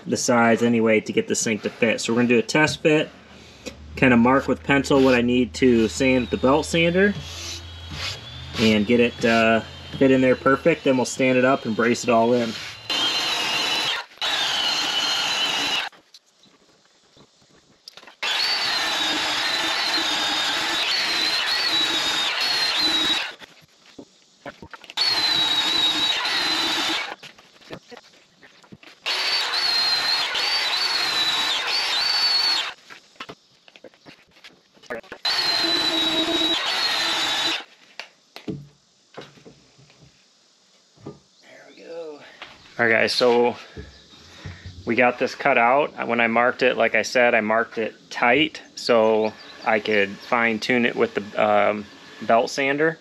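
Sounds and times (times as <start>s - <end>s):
belt sander whining: 1.8s - 16.0s, 18.2s - 23.5s, 24.9s - 27.3s, 29.0s - 32.8s, 35.2s - 37.7s, 48.3s - 52.8s.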